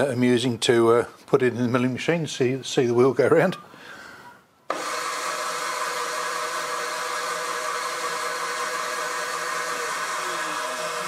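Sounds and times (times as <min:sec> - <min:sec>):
milling machine spindle whirring: 0:04.7 - 0:11.0.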